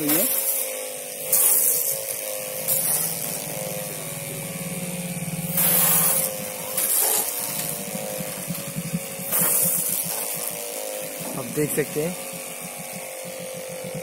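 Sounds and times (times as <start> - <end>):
water jet hissing and splashing: 0.0 - 0.4, 5.4 - 10.4
pressure washer pump whine: 0.0 - 14.0.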